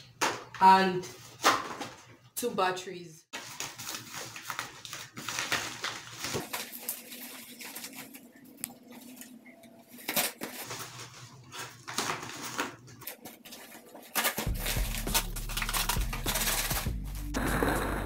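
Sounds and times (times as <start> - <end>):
paper envelope crinkling: 3.4 - 17.4
background music: 14.5 - 18.0.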